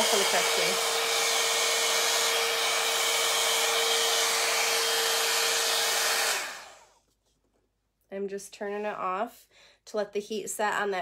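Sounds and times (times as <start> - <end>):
hot-air brush blowing and whining: 0.0 - 7.0.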